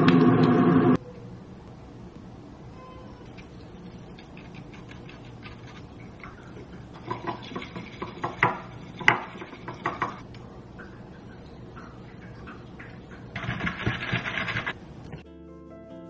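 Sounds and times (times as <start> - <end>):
whisk brushing against glass bowl: 3.3 - 10.2.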